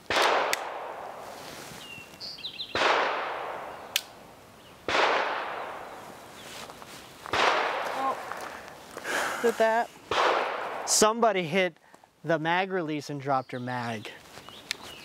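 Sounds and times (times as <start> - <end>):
suppressed pistol shots: 0.1 - 1.2, 2.7 - 4.2, 4.9 - 5.9, 7.3 - 7.9, 10.1 - 10.9.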